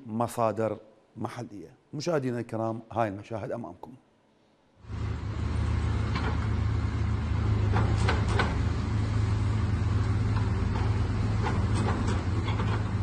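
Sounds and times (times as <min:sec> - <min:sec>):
excavator diesel engine running: 0:04.9 - 0:13.0
sharp knocks: 0:07.6 - 0:08.7, 0:10.2 - 0:13.0.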